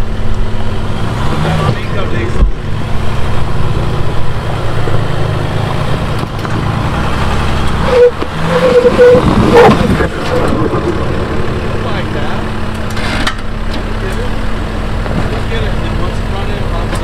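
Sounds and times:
diesel engine under load: 0.0s - 17.0s
tyres spinning in dirt: 5.6s - 14.0s.

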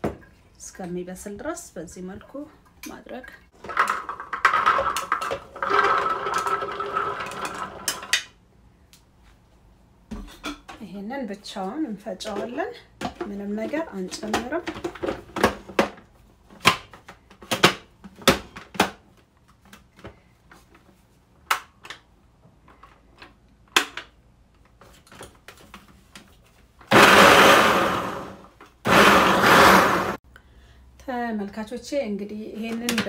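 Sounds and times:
food processor motor grinding: 5.5s - 8.2s, 26.9s - 30.2s.

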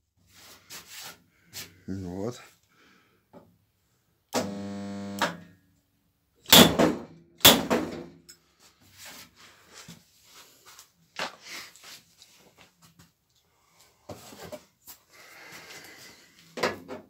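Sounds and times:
spot welder buzzing: 4.4s - 5.4s.

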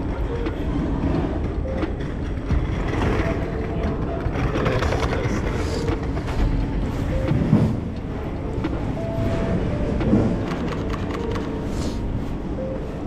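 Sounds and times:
brief tones: 5.5s - 12.0s.

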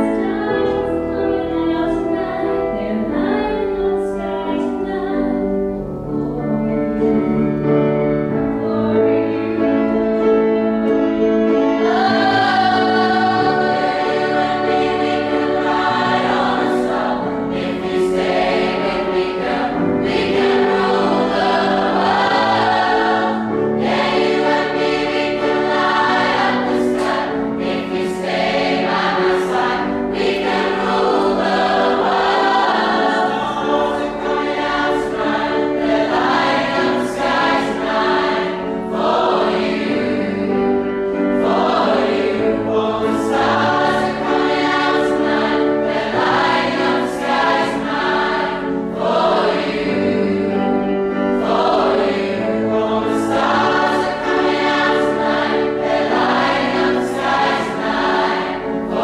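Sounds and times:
choir singing in harmony: 0.0s - 59.0s.

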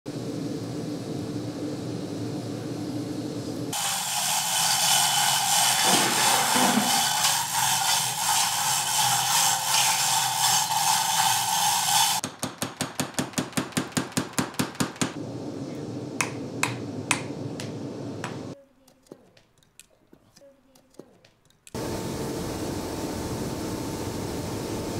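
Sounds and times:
low steady hum: 15.2s - 18.6s.

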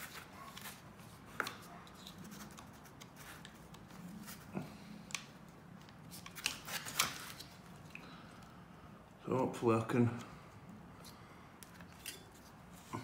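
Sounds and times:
soft handling noise: 0.0s - 8.5s.

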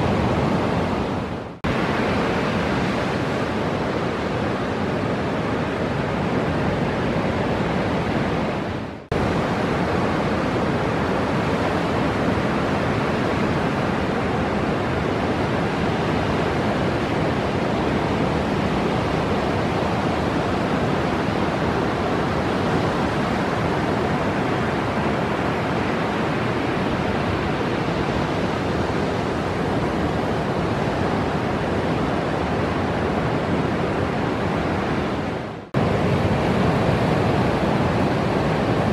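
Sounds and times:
ocean surf breaking: 0.0s - 38.9s.

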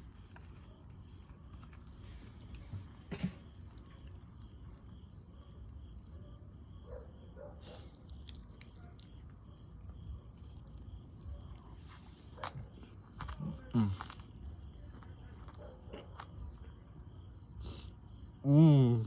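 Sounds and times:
popping candy crackling: 9.8s - 11.9s.

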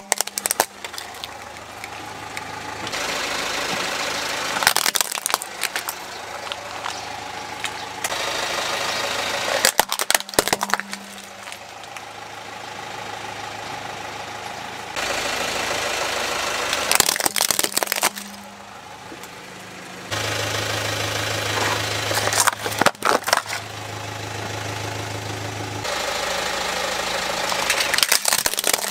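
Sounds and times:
plastic toys cracking under tyre: 0.0s - 2.6s, 4.6s - 8.2s, 9.5s - 12.1s, 16.7s - 18.5s, 22.1s - 23.7s, 27.5s - 28.9s
car engine idling: 0.0s - 28.9s.

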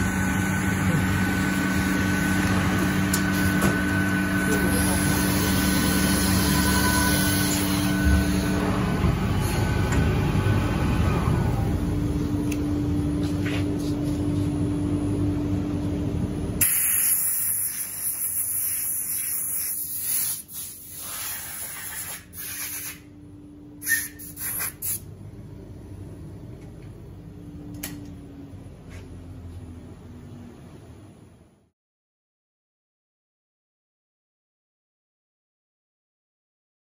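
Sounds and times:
workshop machine hum: 0.0s - 31.7s
air blow gun hissing: 16.6s - 23.0s.

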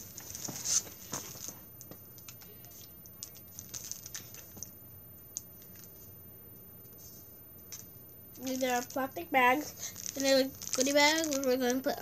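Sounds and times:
plastic packaging crinkling: 3.2s - 4.7s, 8.4s - 12.0s
plastic packaging clicks: 9.9s - 11.9s.

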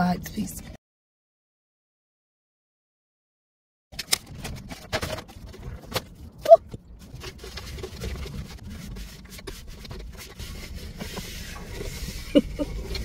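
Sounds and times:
paper napkin rubbing a tray: 7.3s - 13.0s.

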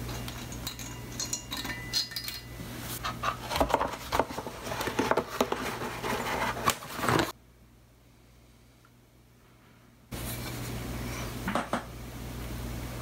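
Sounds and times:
metal parts clinking: 0.0s - 2.5s.

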